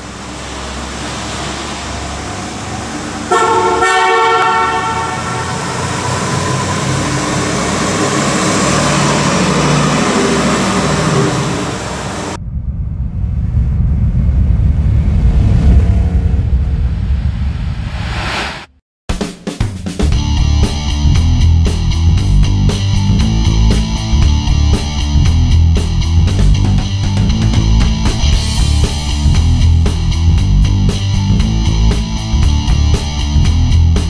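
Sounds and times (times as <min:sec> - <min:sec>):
car horn: 0:03.3 - 0:07.8
deep rumbling: 0:05.0 - 0:18.8, 0:20.1 - 0:34.0
car engine running: 0:20.1 - 0:34.0.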